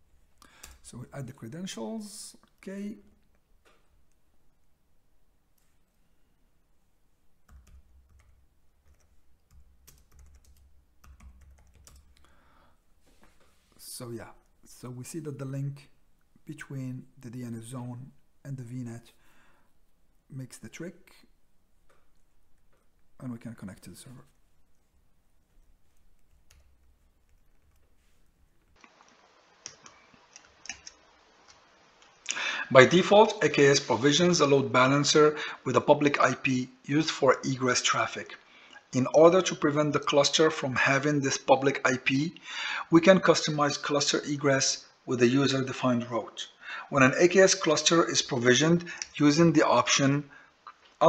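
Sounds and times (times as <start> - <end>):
keyboard typing clicks: 7.5 - 12.2.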